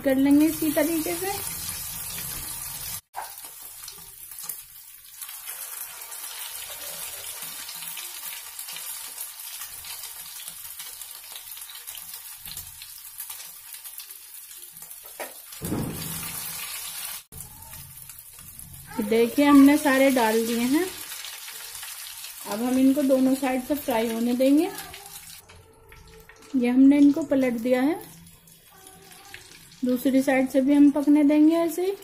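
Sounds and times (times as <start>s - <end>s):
cutlets sizzling in hot oil: 0.4s - 25.4s.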